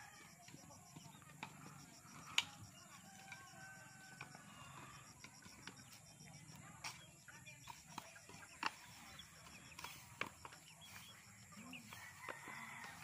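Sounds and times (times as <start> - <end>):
distant calls and voices: 0.0 - 13.0.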